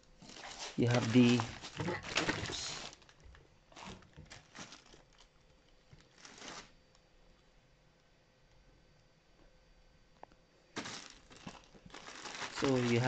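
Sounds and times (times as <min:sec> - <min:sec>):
plastic packaging crinkling: 0:00.2 - 0:06.8, 0:10.8 - 0:13.0.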